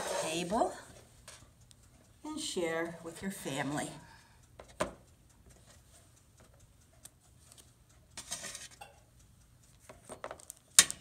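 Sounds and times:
spatula scraping metal baking tray: 0.0s - 0.8s.

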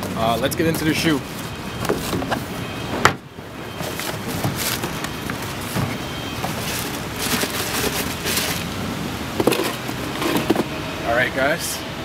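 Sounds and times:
passing traffic: 0.0s - 12.0s
rustling and handling noises: 0.3s - 2.6s, 3.7s - 8.8s, 9.4s - 10.7s.

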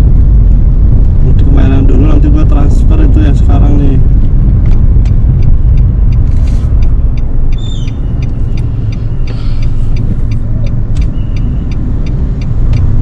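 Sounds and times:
car engine and road rumble: 0.0s - 13.0s
light regular ticking: 1.0s - 13.0s.

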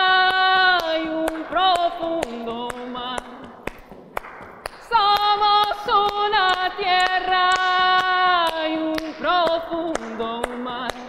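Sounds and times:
woman singing long held notes: 0.0s - 3.5s, 4.9s - 11.0s
steady tapped beat: 0.0s - 11.0s.

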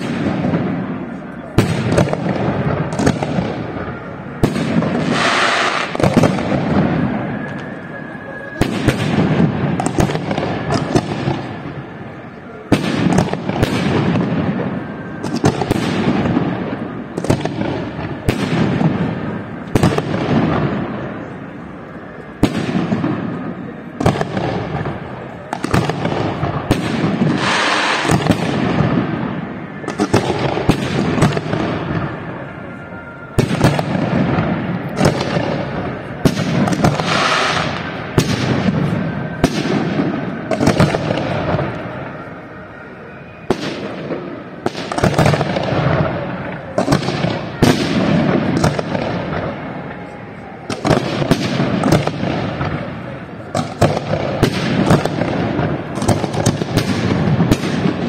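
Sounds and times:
rumbling echo: 0.0s - 58.0s
firework shells bursting: 25.6s - 32.2s, 33.4s - 42.2s
hissing rush: 27.1s - 30.0s.

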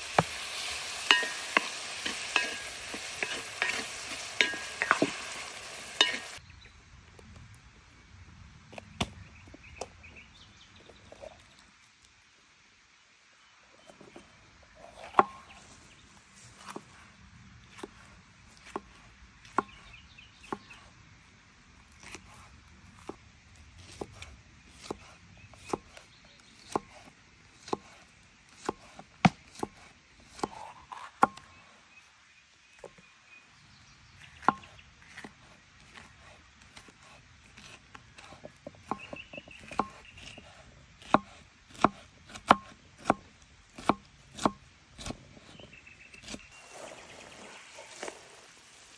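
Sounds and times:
knife chopping on wooden board: 26.6s - 28.0s, 34.4s - 35.3s, 36.7s - 45.2s.

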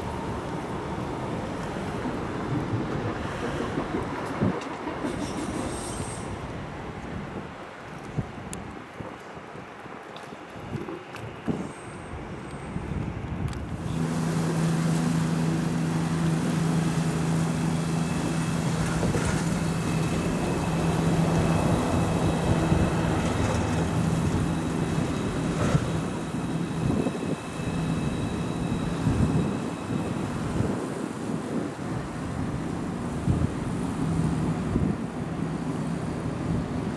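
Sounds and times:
train rolling with high whine: 0.0s - 9.1s, 10.8s - 36.9s
motorboat engine humming: 13.4s - 36.9s.

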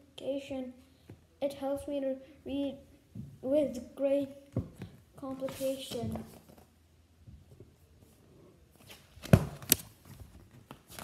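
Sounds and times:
book pages rustling: 5.4s - 6.7s, 8.8s - 11.0s.

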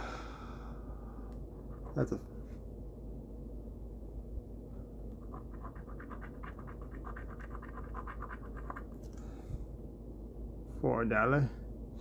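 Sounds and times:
scratch-off ticket being scratched: 5.2s - 8.9s.

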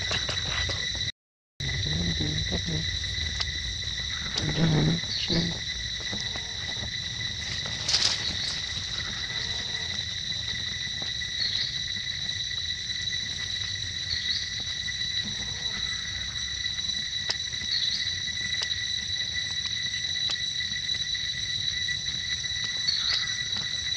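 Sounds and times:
insects droning: 0.0s - 23.9s.

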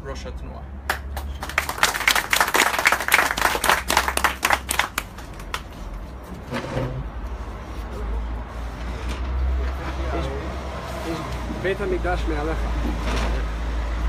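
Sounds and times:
crowd clapping: 0.9s - 5.8s.

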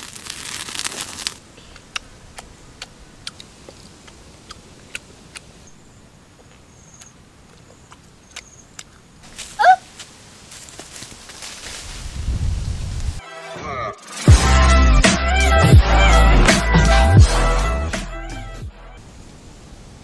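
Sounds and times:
meat sizzling on a hot rock: 0.0s - 1.4s
person chewing and lip smacking: 1.7s - 5.5s, 6.5s - 9.0s.

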